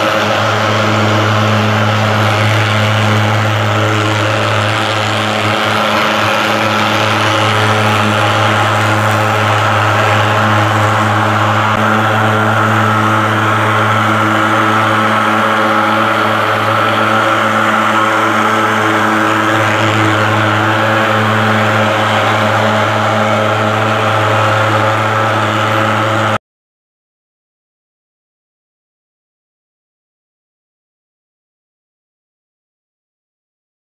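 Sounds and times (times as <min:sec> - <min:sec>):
pulse-jet engine drone: 0:00.0 - 0:26.4.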